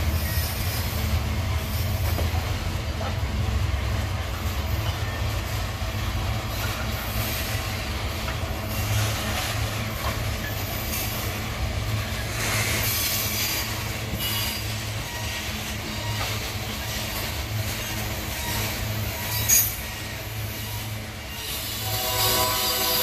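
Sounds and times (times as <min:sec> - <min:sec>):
freight train wheels rumbling: 0:00.0 - 0:23.0.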